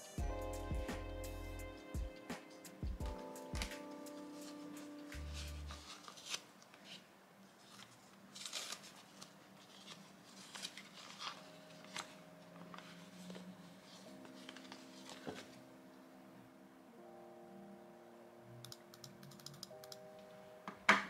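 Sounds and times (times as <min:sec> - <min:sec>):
faint soft music: 0:00.0 - 0:21.0
paper wrapping rustling: 0:03.6 - 0:15.6.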